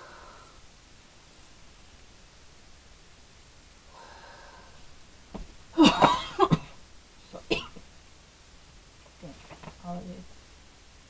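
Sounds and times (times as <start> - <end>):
woman coughing: 5.8 - 6.8, 7.4 - 7.8.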